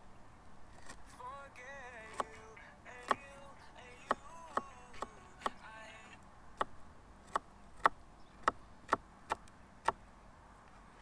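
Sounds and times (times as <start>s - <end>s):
knife chopping on plastic board: 2.1s - 2.4s, 4.1s - 5.6s.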